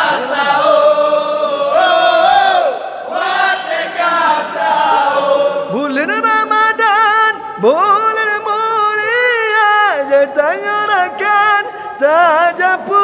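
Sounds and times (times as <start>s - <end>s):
men chanting together: 0.0s - 6.5s
man chanting into a microphone: 5.6s - 13.0s.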